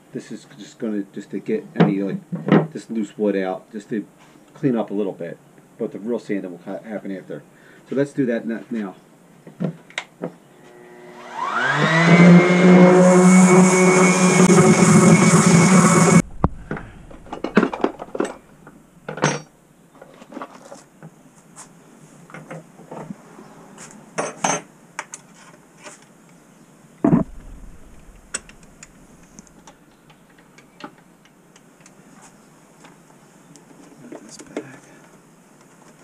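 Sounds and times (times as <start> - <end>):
dull thump: 16.2 - 18.4, 27.1 - 29.4.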